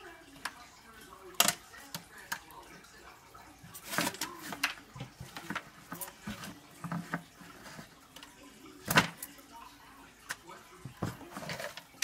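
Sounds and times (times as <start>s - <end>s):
roots brushing aluminium foil: 3.6s - 8.3s.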